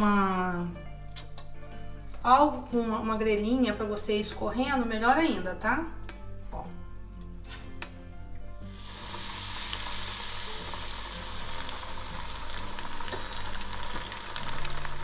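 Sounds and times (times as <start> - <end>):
oil sizzling in deep frying: 8.6 - 15.0.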